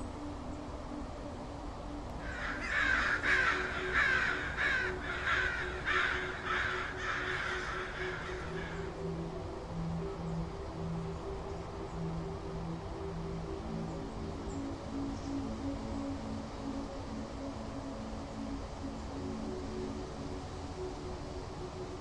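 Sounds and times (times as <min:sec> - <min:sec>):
crow cawing: 0:02.2 - 0:08.9.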